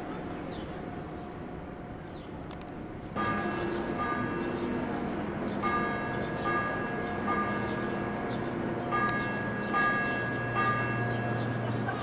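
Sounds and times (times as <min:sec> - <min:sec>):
bells ringing: 0:03.2 - 0:12.0.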